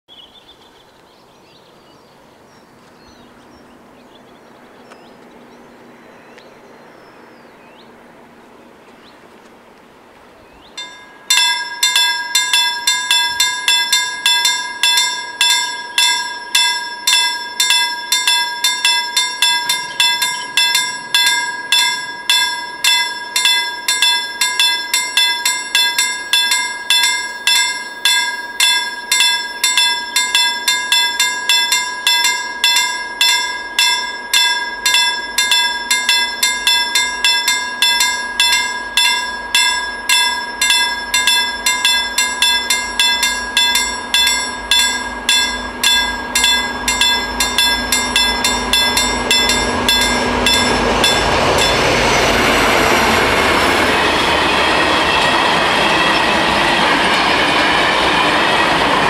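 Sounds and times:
faint birdsong: 0.1s - 11.0s
level crossing warning bells: 10.7s - 59.0s.

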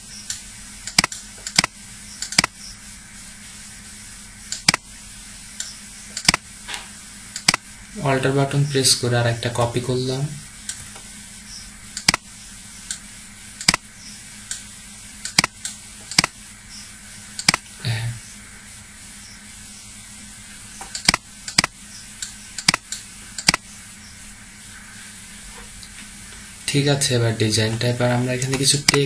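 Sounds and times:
microphone hum and hiss: 0.0s - 29.0s
computer mouse clicking: 0.3s - 2.6s, 4.5s - 4.8s, 5.6s - 6.4s, 7.4s - 7.6s, 12.0s - 12.2s, 13.6s - 13.8s, 15.2s - 16.4s, 17.4s - 17.6s, 20.8s - 23.6s.

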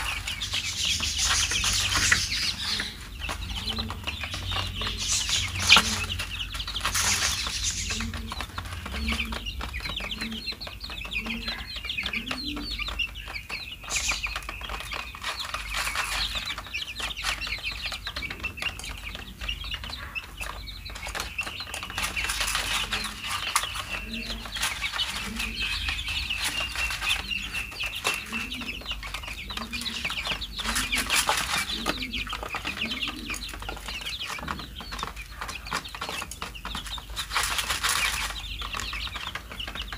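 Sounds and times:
beaks pecking at grain: 0.0s - 39.9s
chicks cheeping: 0.0s - 39.9s.

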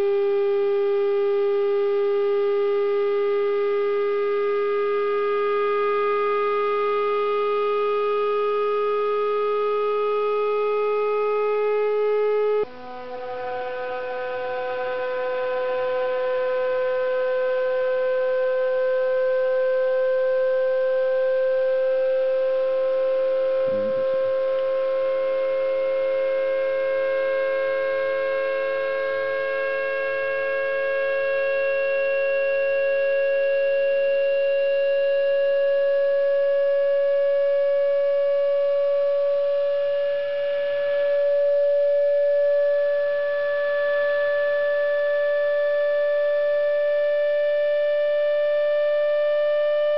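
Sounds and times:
vibrating membrane tone: 15.2s - 32.2s.

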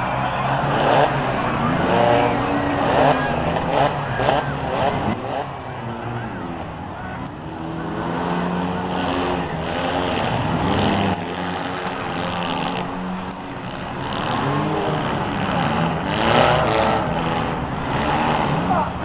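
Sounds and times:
small car engines revving: 0.0s - 19.0s.

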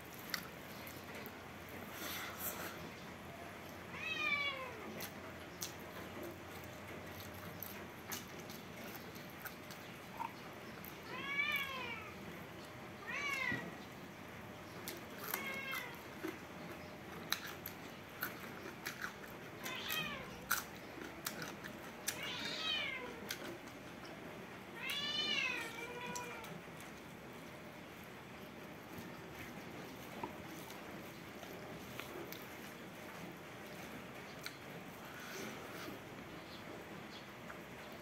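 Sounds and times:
person chewing rice: 0.0s - 2.9s, 4.9s - 11.0s, 14.8s - 22.6s, 23.2s - 24.1s, 28.4s - 36.2s
cat meowing: 3.9s - 5.0s, 11.0s - 12.2s, 13.0s - 13.8s, 15.2s - 16.0s, 19.6s - 20.4s, 22.1s - 23.3s, 24.7s - 26.6s.

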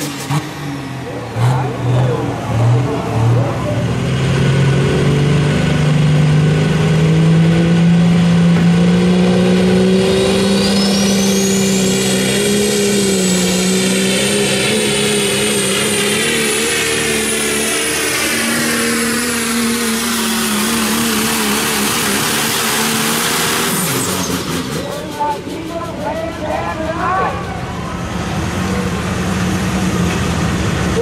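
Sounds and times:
truck engine at full power: 0.0s - 31.0s.

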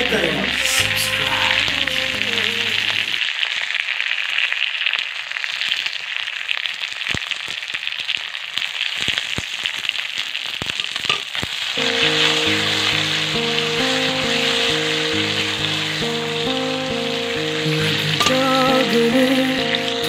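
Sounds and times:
background music: 0.0s - 3.2s, 11.8s - 20.0s
food sizzling in hot oil: 0.0s - 20.0s
oil popping: 10.6s - 19.8s.

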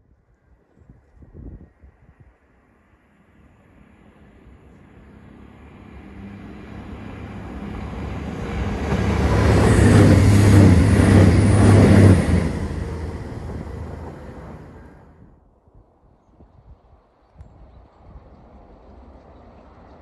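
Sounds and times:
diesel train passing: 2.8s - 15.4s, 18.0s - 20.0s.

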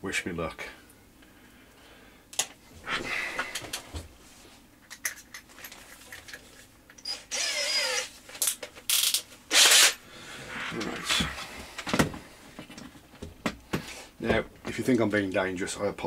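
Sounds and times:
cordless drill motor whine: 7.0s - 8.1s.

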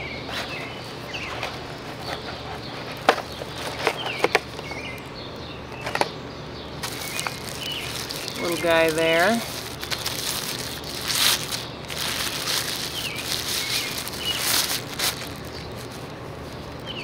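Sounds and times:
faint birds chirping: 0.0s - 17.0s
cardboard box being unpacked: 6.8s - 16.6s.

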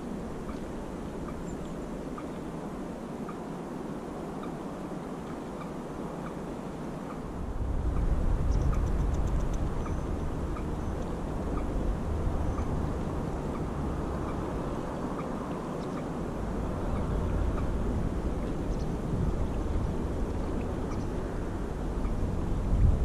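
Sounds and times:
small birds chirping: 0.0s - 2.6s, 4.3s - 22.3s
low outdoor rumble: 6.4s - 23.0s.

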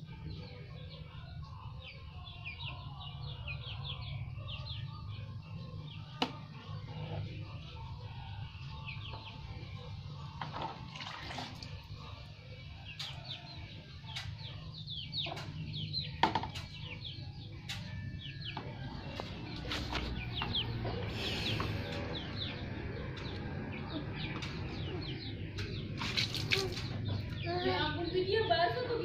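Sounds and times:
water splashing in plastic basin: 10.4s - 11.8s, 25.9s - 27.0s
chickens peeping and clucking: 12.3s - 29.0s.

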